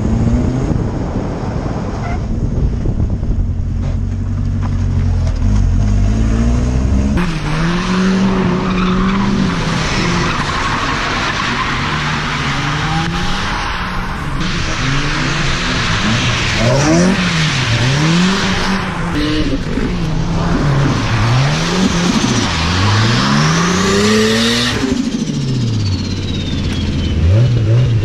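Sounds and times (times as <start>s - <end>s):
car engines revving: 0.0s - 28.0s
tyres skidding on wet asphalt: 7.2s - 27.9s.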